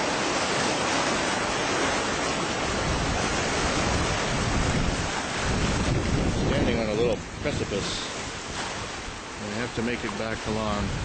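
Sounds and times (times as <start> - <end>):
rough sea surf breaking: 0.0 - 11.0
wind buffeting microphone: 0.0 - 11.0.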